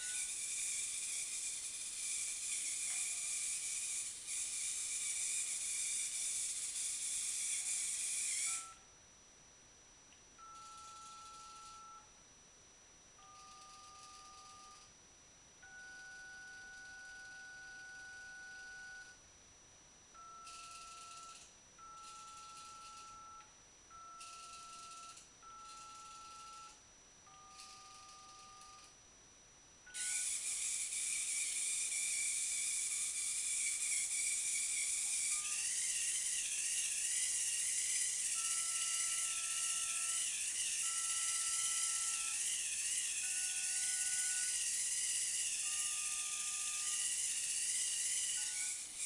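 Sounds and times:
robot motors hissing and whining: 0.0s - 8.8s, 30.0s - 49.0s.

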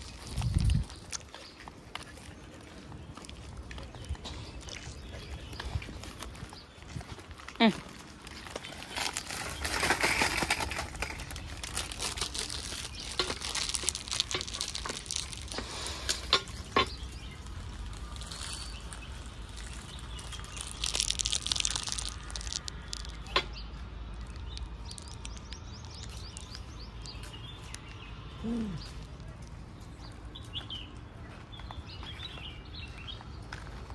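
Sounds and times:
plastic wrapper crinkling: 8.3s - 23.4s, 24.2s - 26.6s.

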